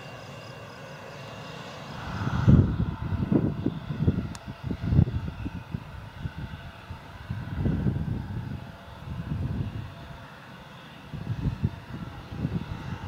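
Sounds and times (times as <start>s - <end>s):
jet engines whining: 0.0s - 13.0s
wind buffeting microphone: 1.8s - 10.3s, 11.0s - 13.0s.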